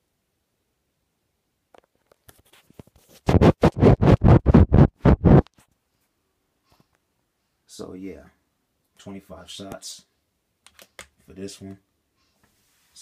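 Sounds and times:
scratching on microphone: 2.3 - 5.7.

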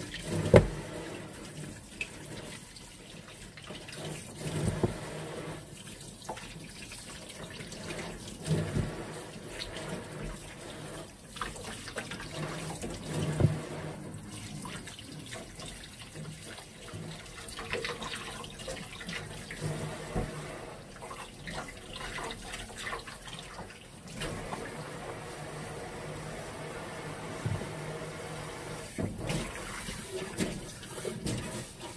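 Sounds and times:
tap water running into sink: 0.0 - 31.9
things clattering in sink: 28.8 - 31.9.

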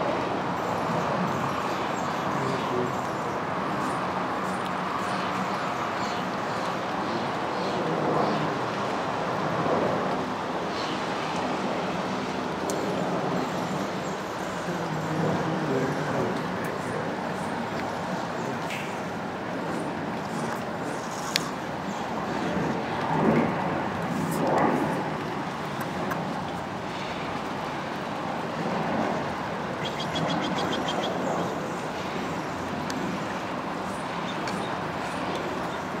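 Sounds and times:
road traffic hum: 0.0 - 36.0.

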